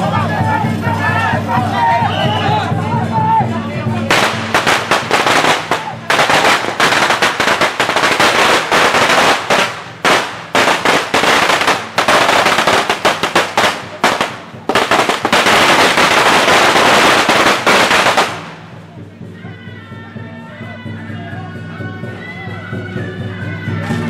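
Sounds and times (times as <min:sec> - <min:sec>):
firecrackers crackling: 0:04.0 - 0:19.2.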